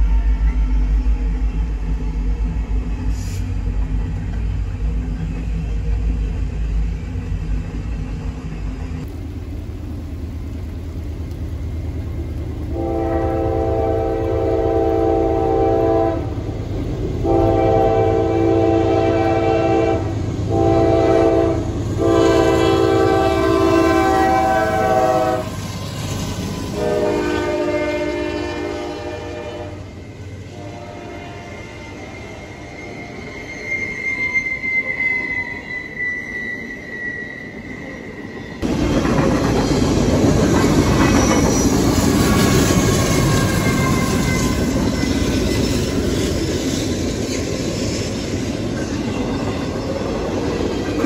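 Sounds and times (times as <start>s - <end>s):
freight train rumbling: 0.0s - 51.0s
locomotive air horn blasts: 12.7s - 16.4s, 17.2s - 25.6s, 26.7s - 29.9s, 30.5s - 31.8s
train wheels clattering: 38.6s - 51.0s.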